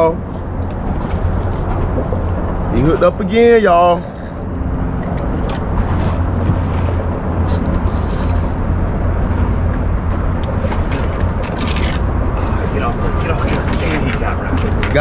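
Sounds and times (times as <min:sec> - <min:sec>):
steady low rumble: 0:00.0 - 0:15.0
fishing reel cranking: 0:03.6 - 0:04.5, 0:07.4 - 0:08.7
reel drag clicks and rasp: 0:03.7 - 0:06.1, 0:06.8 - 0:08.7.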